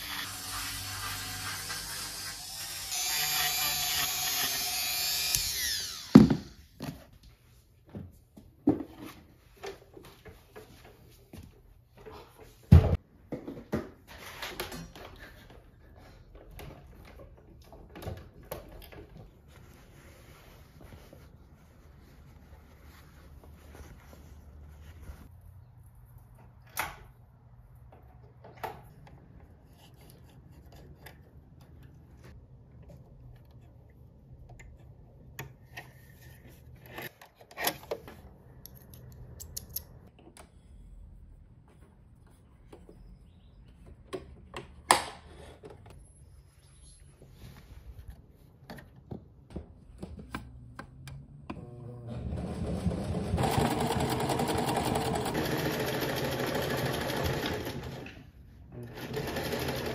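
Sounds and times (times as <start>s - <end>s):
cloth rustling and rubbing: 19.3s - 25.4s.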